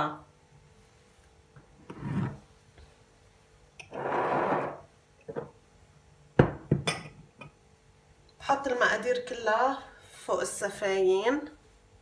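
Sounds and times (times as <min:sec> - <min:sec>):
glass bowl scraping on counter: 0:01.8 - 0:02.4, 0:03.8 - 0:05.5
glass sliding on counter: 0:01.8 - 0:02.4, 0:03.8 - 0:05.5
bowl knocking on counter: 0:06.4 - 0:07.0.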